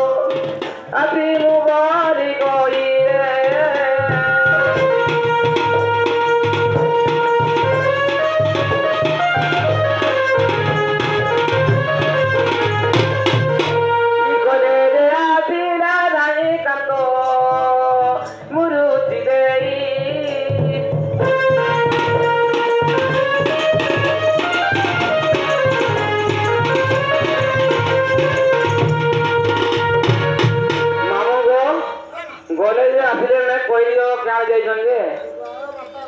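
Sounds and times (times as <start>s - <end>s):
hand drum beat: 2.6s - 13.9s, 19.0s - 31.0s.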